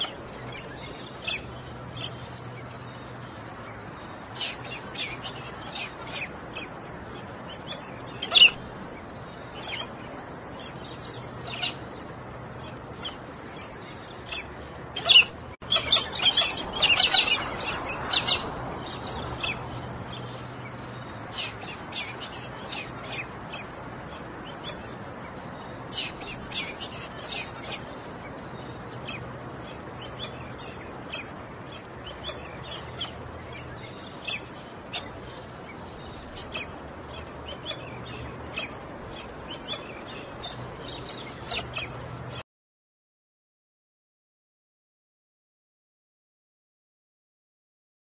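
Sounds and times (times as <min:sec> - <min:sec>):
birds chirping: 0:00.0 - 0:42.4.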